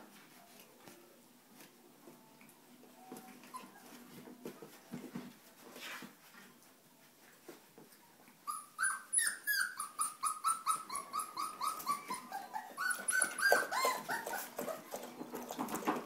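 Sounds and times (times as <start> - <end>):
puppy yelping: 8.4 - 15.1.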